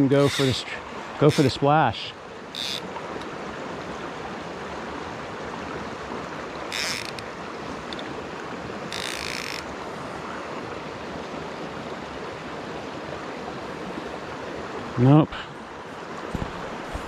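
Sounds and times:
creek flowing: 0:00.0 - 0:17.0
fly reel click drag buzzing: 0:00.2 - 0:00.6, 0:02.5 - 0:03.3, 0:06.7 - 0:07.2, 0:08.9 - 0:09.7.

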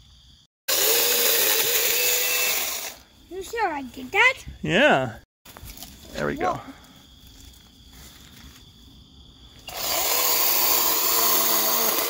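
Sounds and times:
electric chainsaw cutting: 0:00.7 - 0:03.0, 0:09.7 - 0:12.0.

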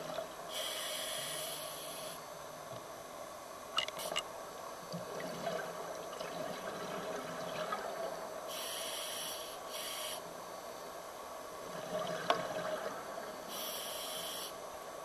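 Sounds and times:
steady underwater noise: 0:00.0 - 0:15.0
scuba regulator breathing: 0:00.5 - 0:02.2, 0:08.5 - 0:10.2, 0:13.5 - 0:14.6
regulator hiss: 0:00.5 - 0:02.4, 0:08.4 - 0:11.0, 0:13.3 - 0:14.8.

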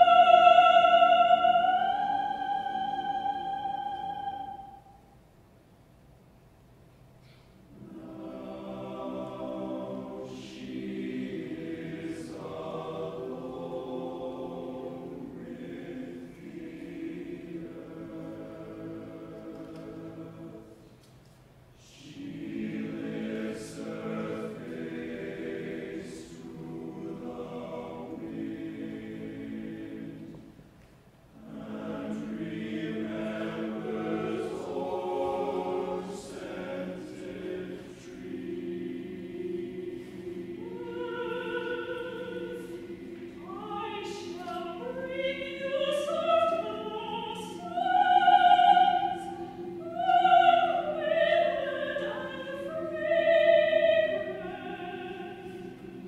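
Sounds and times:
men's chorus singing: 0:00.0 - 0:04.8, 0:07.8 - 0:20.7, 0:22.0 - 0:30.4, 0:31.4 - 0:56.0
solo soprano singing: 0:00.0 - 0:05.0, 0:31.4 - 0:56.0.

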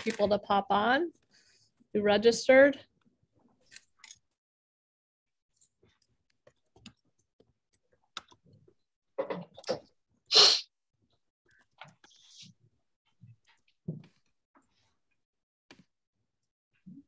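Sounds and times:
person sneezing: 0:10.3 - 0:10.7.

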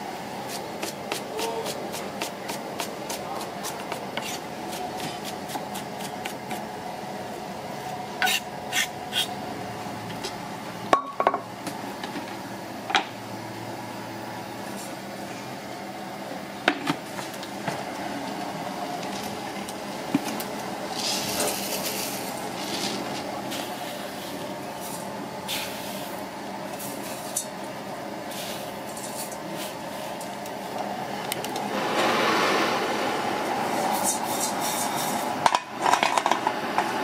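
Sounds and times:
pan hissing: 0:31.7 - 0:35.3.

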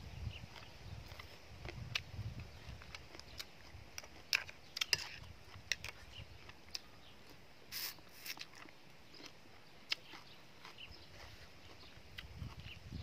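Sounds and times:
wet chewing and crunching: 0:00.2 - 0:13.0.

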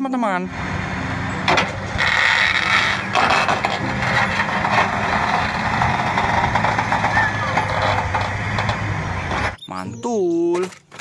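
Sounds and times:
bulldozer diesel engine droning: 0:00.4 - 0:10.0
machine knocks and clanks: 0:01.4 - 0:09.6.

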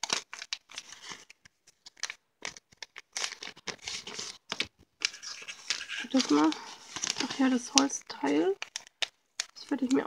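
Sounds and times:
wrapping paper tearing and crinkling: 0:00.0 - 0:10.0.

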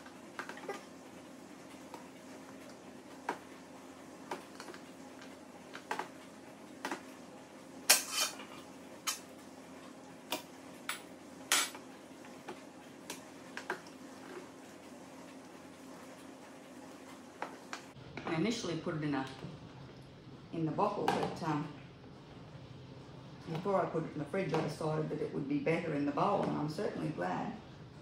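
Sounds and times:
spatula scraping a bowl: 0:07.9 - 0:08.5.

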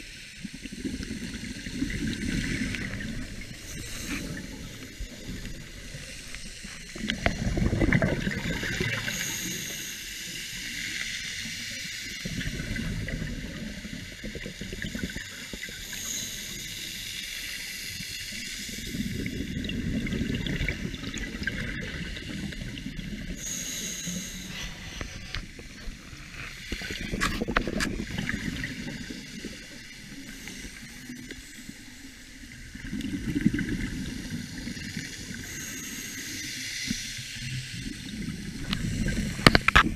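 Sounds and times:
regulator hiss underwater: 0:00.0 - 0:39.9
bubbling exhalations: 0:07.0 - 0:09.2.

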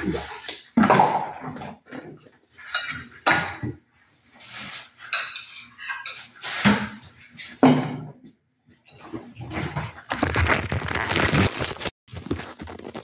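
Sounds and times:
bag rustling: 0:10.1 - 0:13.0.

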